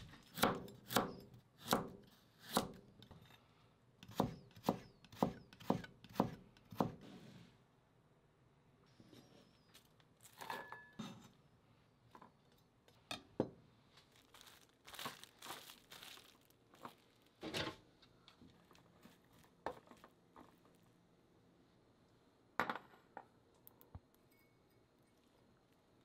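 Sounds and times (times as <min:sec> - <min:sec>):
cling wrap crinkling and tearing: 0:14.0 - 0:17.4.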